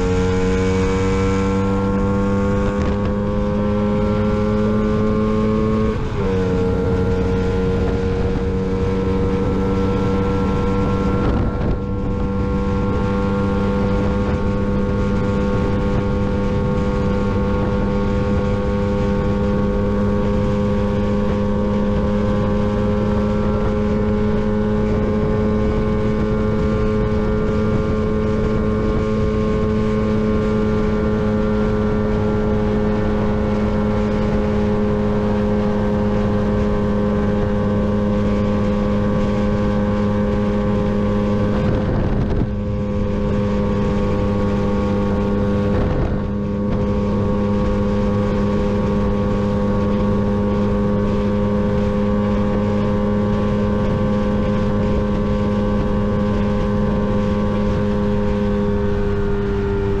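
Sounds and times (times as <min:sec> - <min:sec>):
scooter engine high-pitched drone: 0:00.0 - 1:00.0
wind buffeting microphone: 0:00.0 - 1:00.0.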